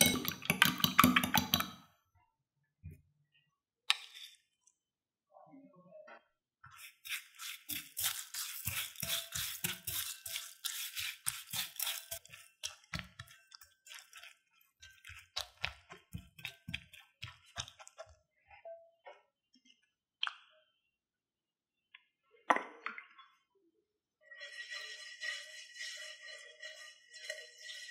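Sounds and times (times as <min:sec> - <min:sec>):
egg pouring: 0:00.0 - 0:01.8, 0:06.7 - 0:17.9, 0:24.3 - 0:27.9
spatula stirring dry noodles: 0:06.7 - 0:18.3, 0:24.3 - 0:27.9.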